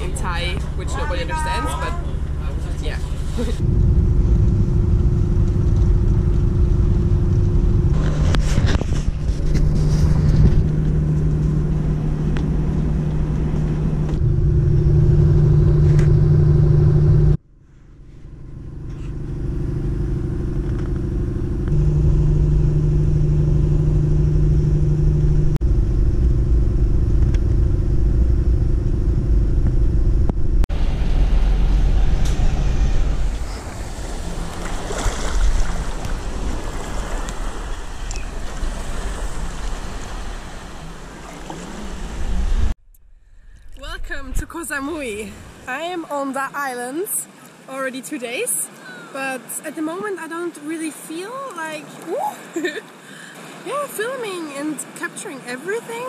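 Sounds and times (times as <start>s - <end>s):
vehicle engine drone and rumble: 0.0s - 56.0s
wind on microphone: 3.5s - 17.4s
surf breaking: 30.8s - 42.7s.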